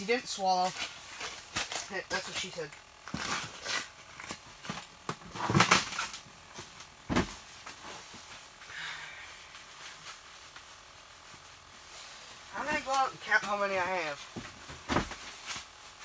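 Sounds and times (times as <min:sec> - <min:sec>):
knocks and scuffs of gear: 0:14.3 - 0:15.7.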